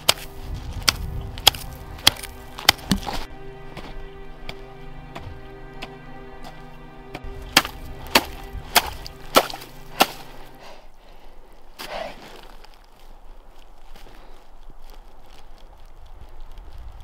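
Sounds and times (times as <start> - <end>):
background music with sustained tones: 0.0 - 11.4
ice crunch: 0.0 - 17.0
hatchet striking ice: 7.5 - 10.4.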